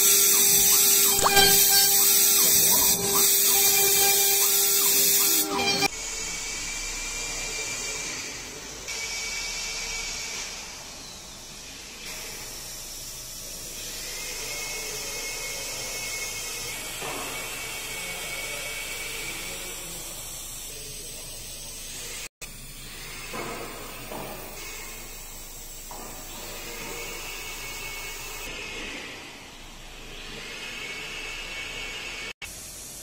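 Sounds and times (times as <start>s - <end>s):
bit cutting hiss: 0.0s - 6.8s
router spindle whining: 0.0s - 12.1s.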